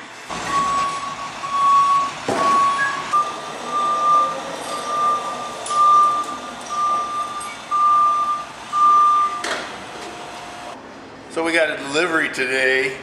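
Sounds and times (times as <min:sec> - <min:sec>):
backup alarm beeping: 0:00.3 - 0:09.7.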